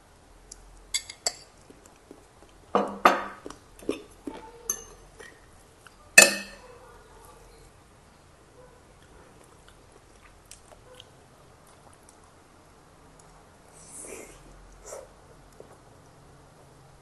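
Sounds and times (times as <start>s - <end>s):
cutlery clinking on a ceramic plate: 4.7s - 5.3s, 6.2s - 6.6s.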